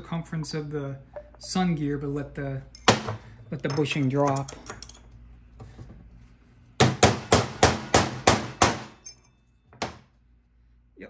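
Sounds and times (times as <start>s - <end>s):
hammer striking steel punch: 6.8s - 9.1s.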